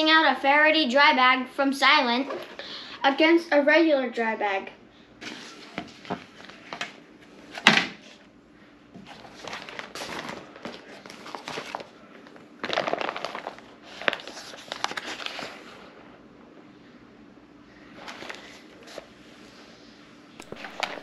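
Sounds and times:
plastic bags rustling and crinkling: 9.0s - 16.0s, 17.9s - 19.1s, 20.4s - 21.0s.

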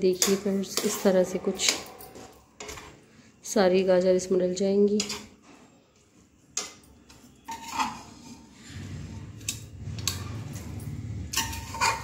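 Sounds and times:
spoon scraping steel pots: 0.0s - 3.0s, 4.9s - 5.4s, 6.5s - 12.0s.

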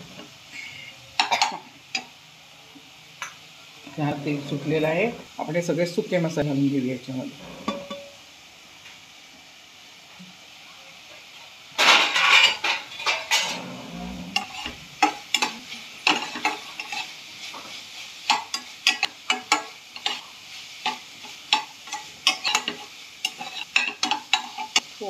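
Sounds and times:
light sizzle: 0.0s - 25.0s
metal spatula scraping a pan: 3.8s - 5.6s, 7.3s - 8.2s, 11.8s - 24.9s.

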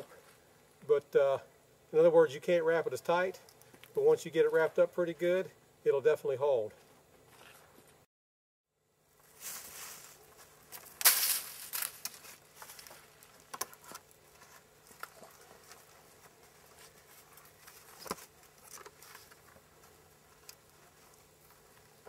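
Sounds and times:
grapevine rustling and scraping: 7.2s - 8.0s, 9.2s - 22.0s.

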